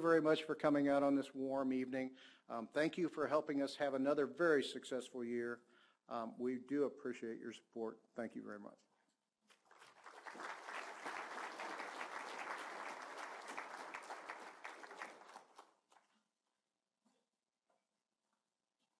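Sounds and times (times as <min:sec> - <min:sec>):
audience applauding: 0:09.6 - 0:15.7.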